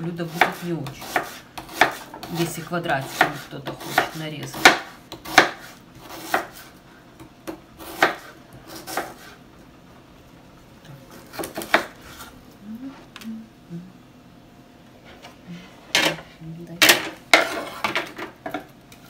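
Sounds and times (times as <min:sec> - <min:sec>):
knife chopping on cutting board: 0:00.3 - 0:09.4, 0:11.2 - 0:12.2.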